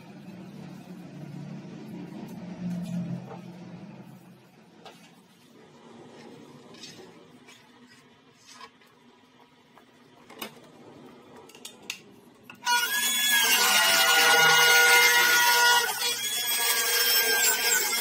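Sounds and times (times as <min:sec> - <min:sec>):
track saw whining: 0:12.6 - 0:18.0.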